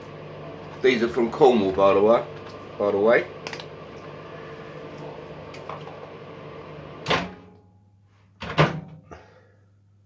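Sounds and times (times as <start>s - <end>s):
microwave oven humming: 0.0s - 7.9s.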